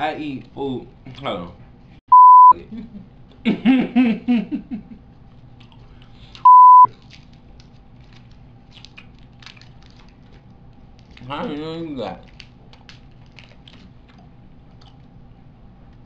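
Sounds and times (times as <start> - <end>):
high-pitched censor bleeps: 2.1 - 2.5, 6.5 - 6.9.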